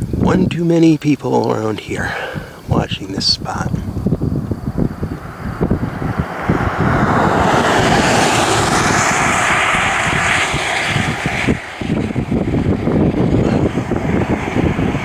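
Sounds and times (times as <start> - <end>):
wind buffeting microphone: 0.0 - 15.0
vehicle passing on road: 3.8 - 15.0.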